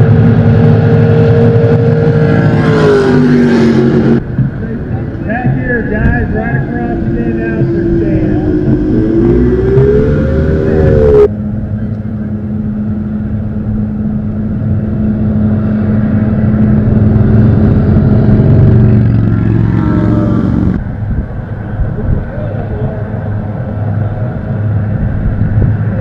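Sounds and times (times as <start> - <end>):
racing boat engines running: 0.0 - 26.0.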